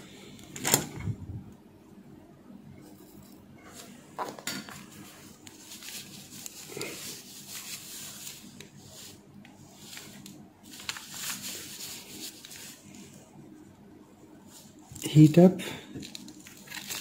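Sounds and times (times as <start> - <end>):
cloth rustling: 4.8 - 13.3.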